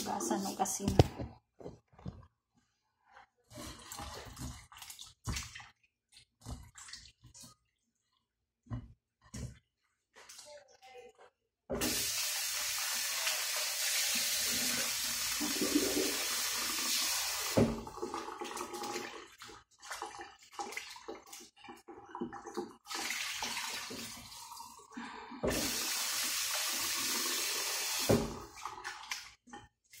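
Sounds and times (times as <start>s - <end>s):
water splashing: 3.5s - 8.2s
tap running into sink: 17.4s - 18.0s, 27.9s - 28.5s.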